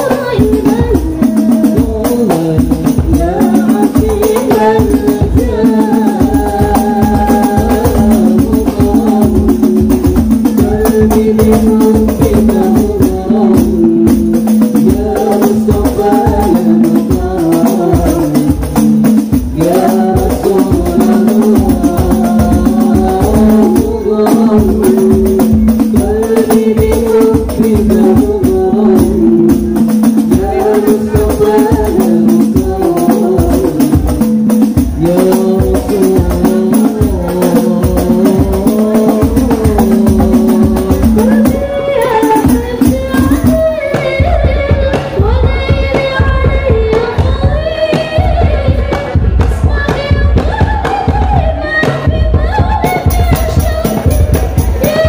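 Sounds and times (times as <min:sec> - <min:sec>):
deep drums: 0:00.0 - 0:55.0
frame drums playing fast rhythm: 0:00.0 - 0:55.0
voices singing: 0:00.0 - 0:55.0.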